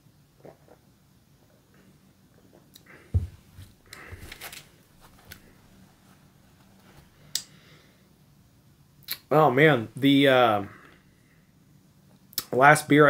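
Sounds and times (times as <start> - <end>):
person sipping and swallowing: 0.4 - 3.1
dull knock: 3.1 - 3.4.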